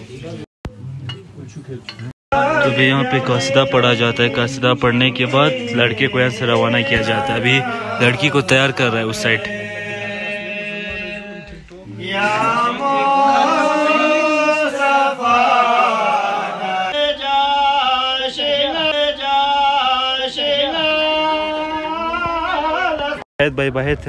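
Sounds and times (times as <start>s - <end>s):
man chanting devotional poem: 2.3s - 15.2s.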